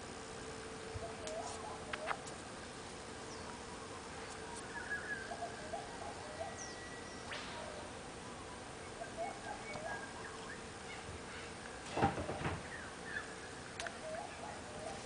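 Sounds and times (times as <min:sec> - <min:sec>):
faint steady hum: 0:00.0 - 0:15.0
birds chirping and calling: 0:00.8 - 0:02.3, 0:03.2 - 0:15.0
rustling and knocking: 0:11.9 - 0:12.7.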